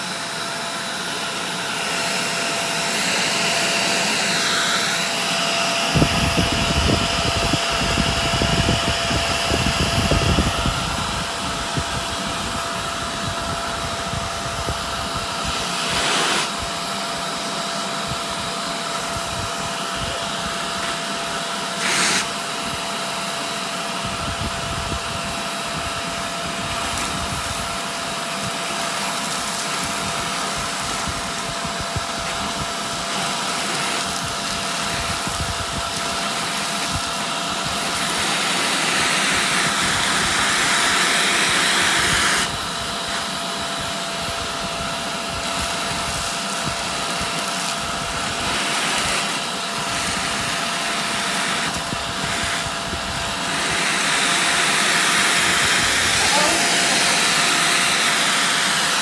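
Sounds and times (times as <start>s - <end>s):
vacuum cleaner whining: 0.0s - 59.0s.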